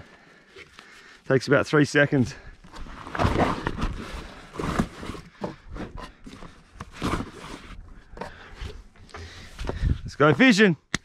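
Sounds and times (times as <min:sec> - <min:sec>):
rustling: 0:02.6 - 0:07.8.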